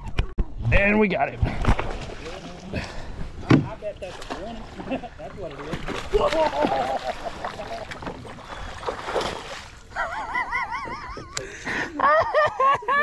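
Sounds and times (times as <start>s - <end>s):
fish thrashing and splashing: 1.4s - 3.2s, 4.0s - 10.0s
knocks against boat: 3.4s - 3.8s.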